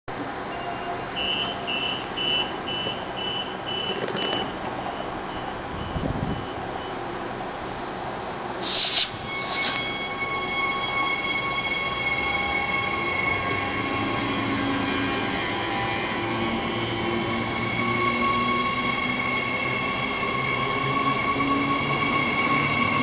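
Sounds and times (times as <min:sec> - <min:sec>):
door warning beeps: 0:00.5 - 0:07.0
air hiss bursts: 0:07.5 - 0:10.0.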